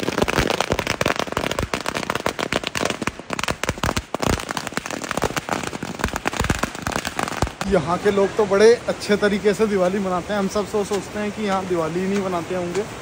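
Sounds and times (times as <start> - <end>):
firecrackers cracking: 0.0 - 8.4.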